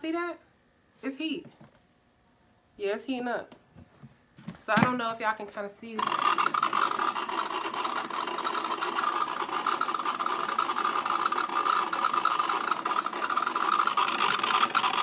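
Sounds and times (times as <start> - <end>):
foot spa motor buzzing rattle: 5.9 - 15.0.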